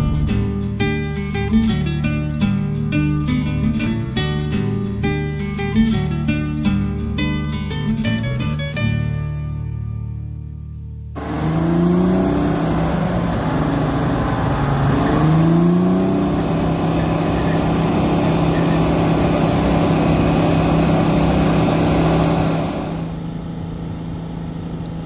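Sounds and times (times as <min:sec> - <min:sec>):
road noise: 0:11.2 - 0:23.2
vehicle engine accelerating: 0:11.2 - 0:23.2.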